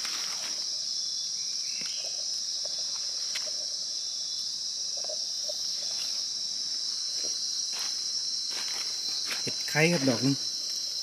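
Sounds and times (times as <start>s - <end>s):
rustling in dry leaves: 0.0s - 0.9s
high-pitched insect chorus: 0.0s - 11.0s.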